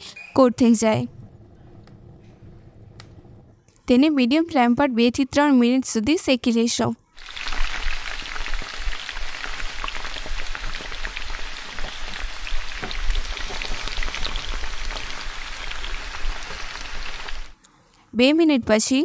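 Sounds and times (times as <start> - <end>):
bread sizzling in fat: 7.2 - 17.6.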